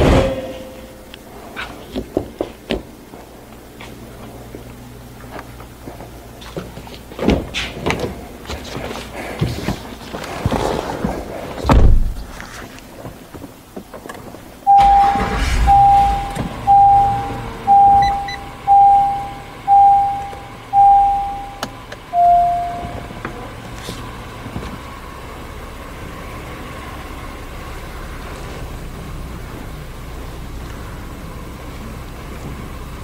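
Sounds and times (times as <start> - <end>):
car door shutting: 14.7 - 23.4.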